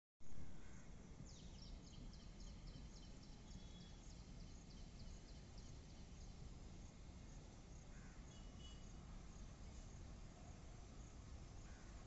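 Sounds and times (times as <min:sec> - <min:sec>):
faint low rumble: 0:00.2 - 0:08.2
small bird chirping: 0:01.2 - 0:06.5, 0:07.7 - 0:11.9.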